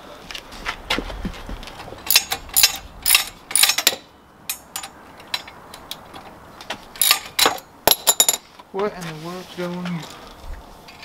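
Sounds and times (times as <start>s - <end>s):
metal clinks and scrapes: 2.0s - 5.6s, 7.0s - 8.6s.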